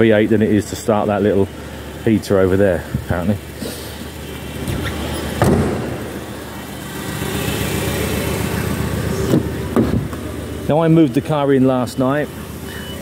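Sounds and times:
diesel engine idling: 0.0 - 13.0
sharp knock: 5.4 - 6.1.

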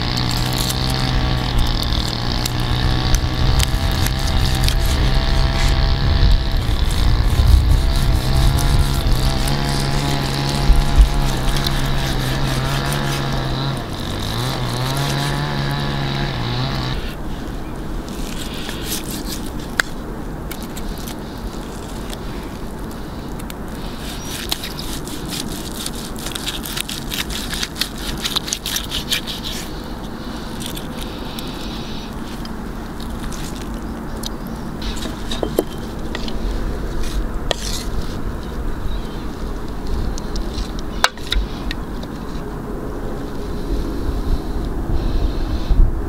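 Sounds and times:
knife sawing through crusty meat: 0.0 - 17.2, 18.1 - 23.0, 23.7 - 32.4
motor droning: 0.0 - 45.7.

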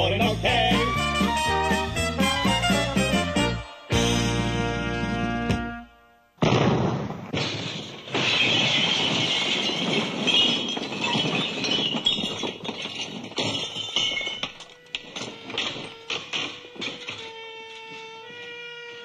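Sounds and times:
glass and crockery smashing: 7.3 - 17.2.

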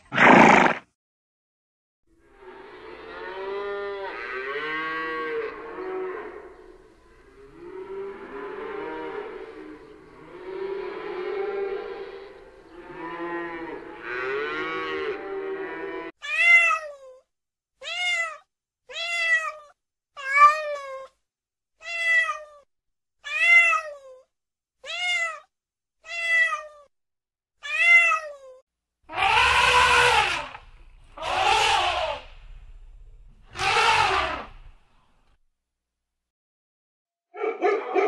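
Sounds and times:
kitten meowing: 17.8 - 21.1, 21.8 - 22.6, 23.2 - 24.2, 24.8 - 26.9, 27.6 - 30.4.

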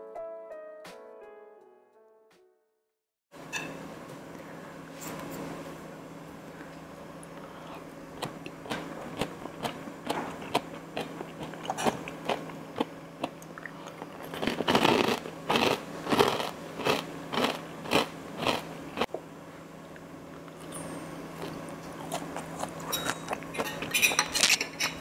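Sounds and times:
crunchy food being chewed: 7.3 - 19.1, 21.4 - 25.0.

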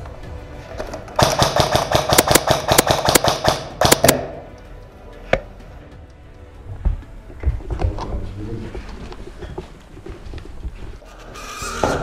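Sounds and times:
airsoft rifle shots: 1.2 - 4.5.

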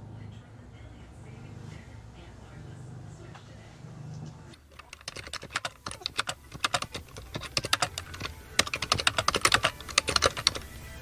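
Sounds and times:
computer keyboard typing: 4.6 - 10.8.

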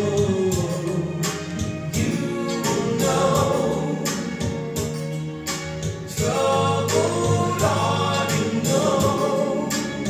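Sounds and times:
people singing: 0.0 - 5.2, 6.1 - 10.0
steady music beat: 0.0 - 10.0.

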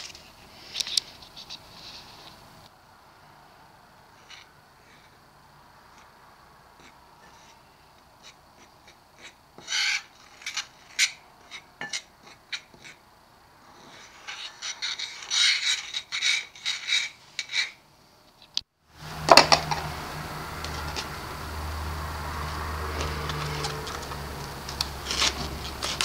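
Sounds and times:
fork scraping through dry coating: 6.8 - 13.0, 13.7 - 17.8, 23.0 - 26.0.

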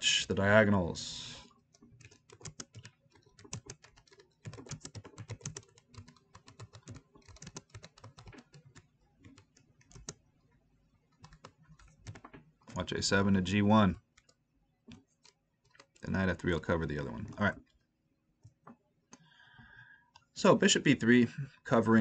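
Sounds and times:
typing on computer keyboard: 1.7 - 10.2, 11.1 - 12.8, 14.0 - 17.8.

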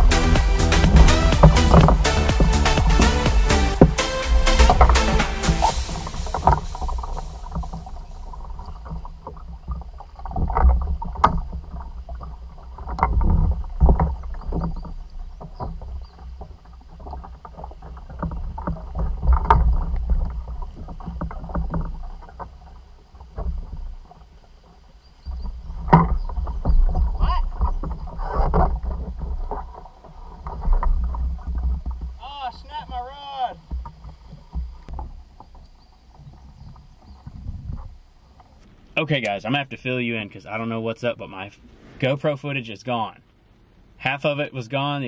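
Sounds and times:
knocks and bumps on hull: 0.0 - 38.7
water splashing against kayak: 0.0 - 42.4.

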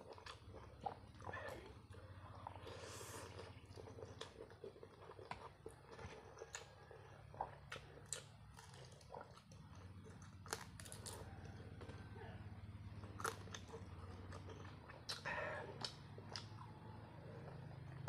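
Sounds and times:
wet chewing and slurping: 0.0 - 18.0.

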